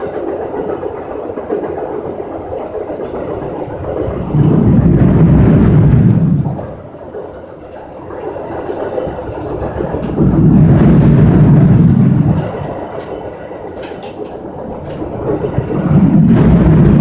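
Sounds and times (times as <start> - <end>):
sharp rattles and clicks: 0.0 - 17.0
train wheels rumbling over rails: 0.0 - 17.0.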